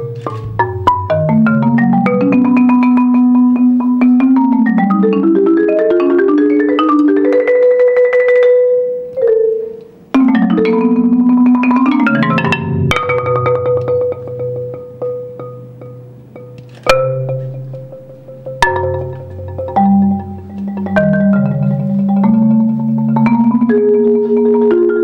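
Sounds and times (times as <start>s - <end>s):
marimba played with mallets: 0.0s - 25.0s.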